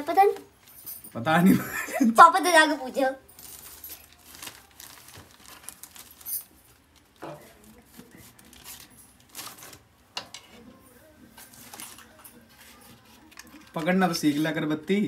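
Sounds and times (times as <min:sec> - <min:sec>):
light rustling of small objects: 0:03.0 - 0:15.0.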